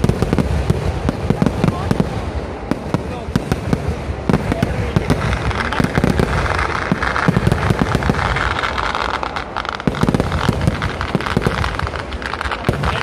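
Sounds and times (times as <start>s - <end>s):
fireworks bangs: 0.0s - 13.0s
fireworks crackling: 0.0s - 13.0s.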